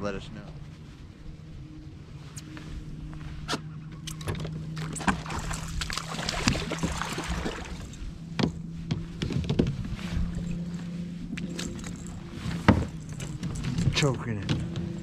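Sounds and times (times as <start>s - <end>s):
low electric hum: 0.0s - 15.0s
fish splashing at surface: 4.8s - 7.9s.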